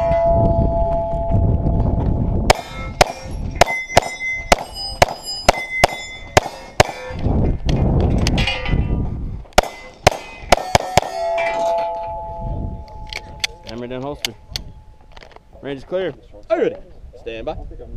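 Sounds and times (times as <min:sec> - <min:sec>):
pistol shots: 0:02.5 - 0:07.2, 0:09.6 - 0:11.4
steel plate clanging: 0:02.5 - 0:07.3, 0:08.2 - 0:14.5.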